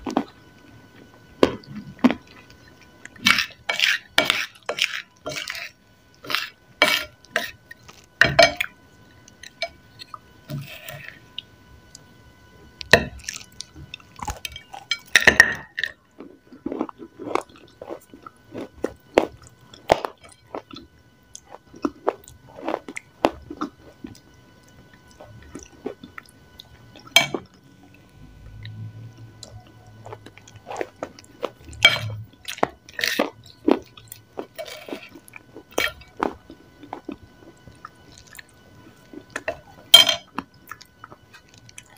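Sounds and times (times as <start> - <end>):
chewing and crunching: 0.0 - 12.1, 12.8 - 41.9
fork scraping on ceramic plate: 3.3 - 7.6.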